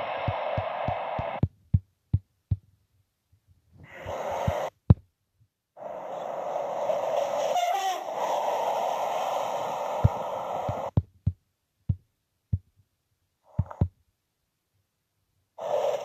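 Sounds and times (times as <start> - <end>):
outdoor noise: 0.0 - 16.0.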